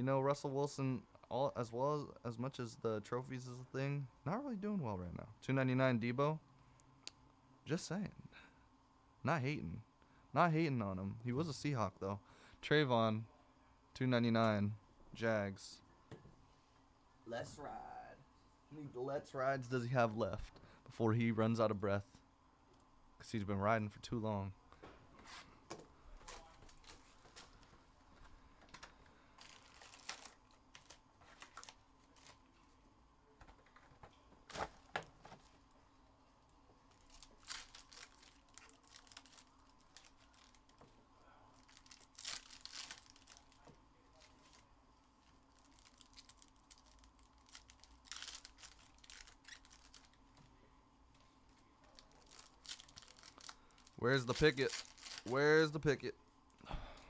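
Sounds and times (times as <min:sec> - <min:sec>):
low steady hum: 0:00.0 - 0:57.0
wrappers tearing and crinkling: 0:26.2 - 0:27.7, 0:29.4 - 0:32.5, 0:36.9 - 0:40.8, 0:41.6 - 0:50.2, 0:51.4 - 0:55.4.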